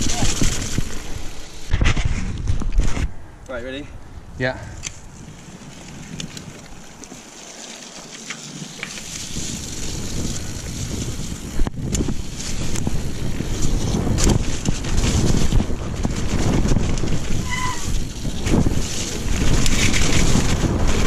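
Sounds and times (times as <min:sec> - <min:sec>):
bike tyre rumble on dirt: 0:00.0 - 0:03.2, 0:04.0 - 0:21.0
wind noise on microphone: 0:00.0 - 0:03.3, 0:08.8 - 0:21.0.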